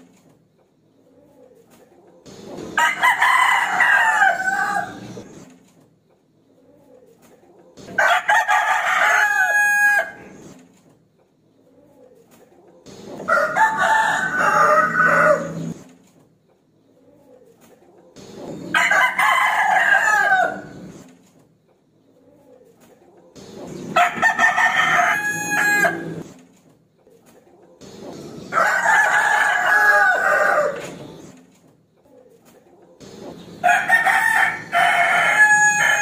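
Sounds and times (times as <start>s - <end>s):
rooster crowing: 2.8s - 5.2s, 8.0s - 10.3s, 13.3s - 15.8s, 18.7s - 20.8s, 24.0s - 26.2s, 28.5s - 31.0s, 33.6s - 36.0s.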